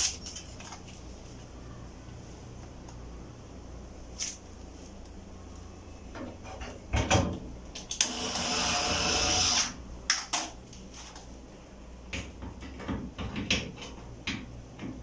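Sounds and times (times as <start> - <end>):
parts knocking and clattering: 6.1 - 7.5, 12.1 - 15.0
cordless drill driving screw: 8.0 - 9.7.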